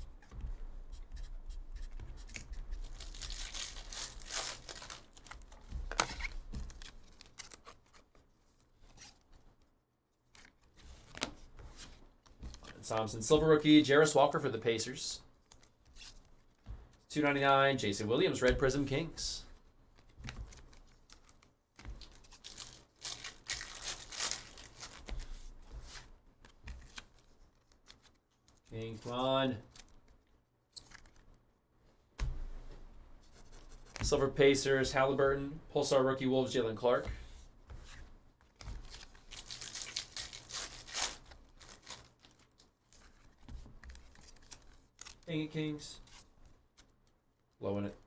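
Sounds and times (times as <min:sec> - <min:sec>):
cards rustling: 0:01.7 - 0:08.2, 0:18.5 - 0:31.4, 0:36.5 - 0:47.2
foil wrapper crinkling and tearing: 0:02.8 - 0:05.5, 0:22.0 - 0:25.3, 0:38.8 - 0:42.6.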